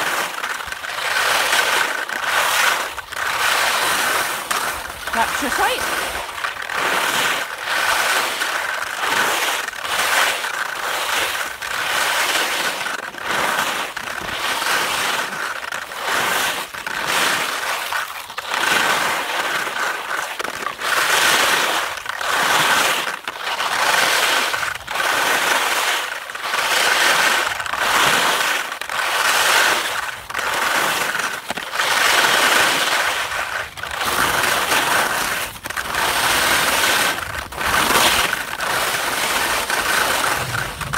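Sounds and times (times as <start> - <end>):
skis scraping over snow: 0.0 - 40.9.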